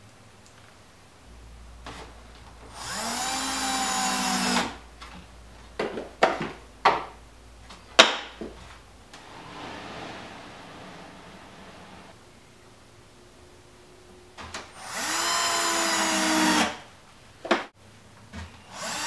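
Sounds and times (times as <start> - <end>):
cordless drill driving a screw: 2.8 - 4.7, 14.8 - 16.8, 18.7 - 19.0
drawer sliding on metal slides: 9.2 - 12.2.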